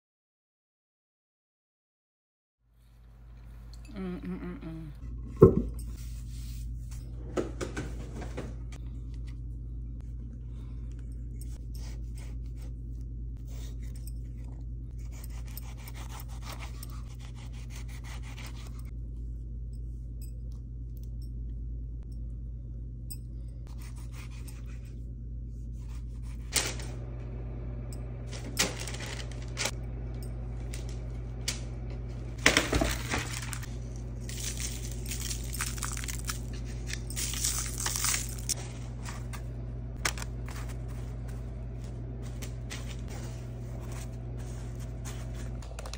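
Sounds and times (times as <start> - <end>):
low hum: 2.8 - 45.9
paper crinkling and rustling: 25.9 - 27.0, 28.3 - 29.8, 32.4 - 45.9.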